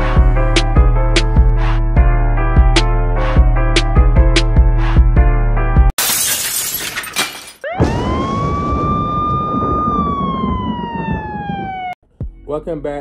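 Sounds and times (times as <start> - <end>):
glass shattering: 6.0 - 7.7
siren-like sweeping tone: 7.7 - 12.0.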